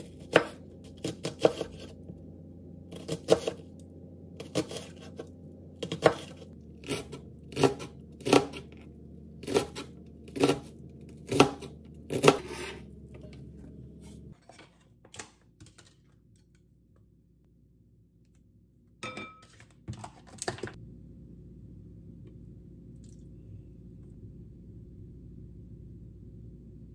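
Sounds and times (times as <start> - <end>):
knife chopping on cutting board: 0.0 - 1.9, 2.9 - 3.6, 4.4 - 5.2, 5.8 - 8.7, 9.4 - 12.8.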